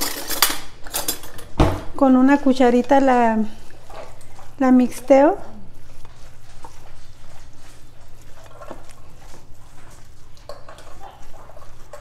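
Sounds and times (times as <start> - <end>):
cheese curds squishing by hand: 3.0 - 12.0.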